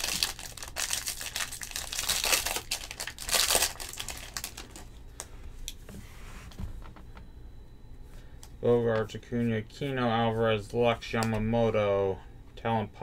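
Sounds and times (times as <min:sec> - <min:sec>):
plastic wrapper tearing and crinkling: 0:00.0 - 0:04.9.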